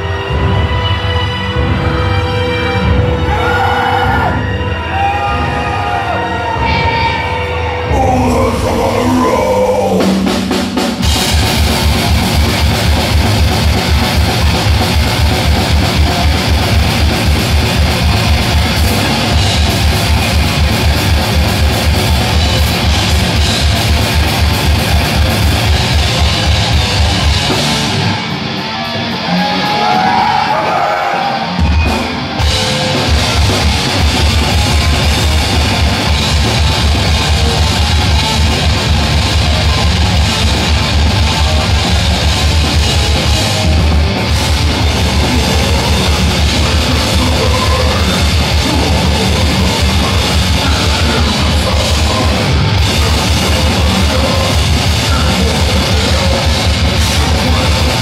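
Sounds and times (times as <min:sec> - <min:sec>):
distorted electric guitars: 0:00.0 - 0:58.0.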